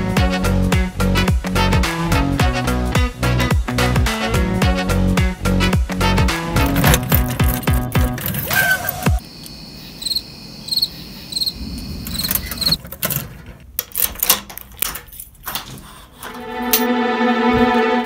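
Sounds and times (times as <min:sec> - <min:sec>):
key ring jangling: 0:06.6 - 0:09.0, 0:13.9 - 0:15.5
keys turning in locks: 0:06.6 - 0:09.1, 0:12.1 - 0:16.0
faint high-pitched chirping: 0:08.5 - 0:12.8.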